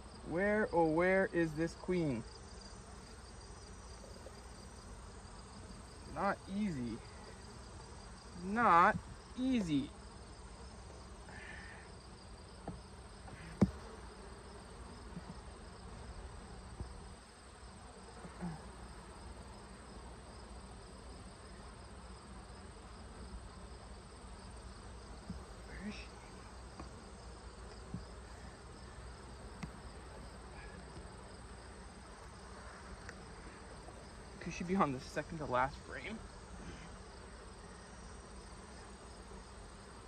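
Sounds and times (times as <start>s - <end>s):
honeybees buzzing: 0.0s - 40.0s
hive tool clicking on wood: 13.5s - 13.9s, 29.6s - 29.8s.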